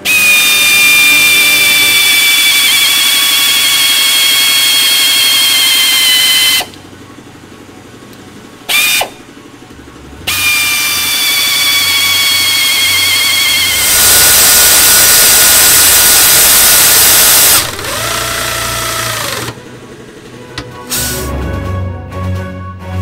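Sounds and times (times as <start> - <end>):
air ratchet hissing and whining: 0.0 - 6.8, 8.7 - 9.2, 10.3 - 19.6.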